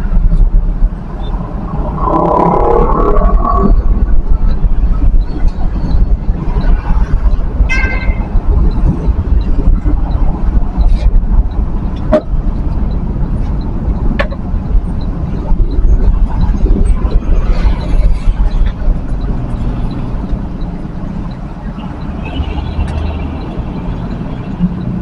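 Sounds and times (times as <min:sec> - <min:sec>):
vehicle engine and road noise: 0:00.0 - 0:25.0
vehicle horn toot: 0:07.7 - 0:08.3.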